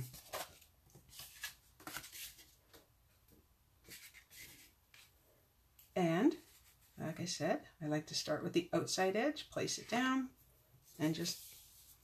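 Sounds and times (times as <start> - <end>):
paper rustling: 0.0 - 2.8.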